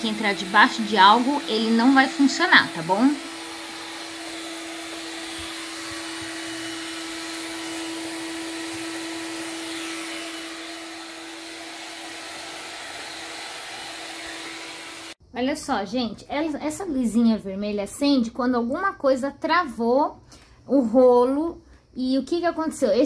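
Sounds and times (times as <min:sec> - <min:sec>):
stick vacuum running: 0:00.0 - 0:15.2.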